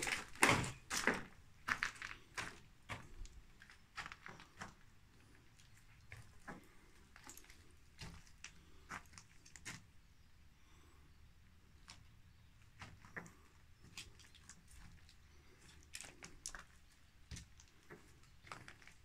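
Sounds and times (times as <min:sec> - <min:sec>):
footsteps on gritty concrete: 0:00.0 - 0:04.8.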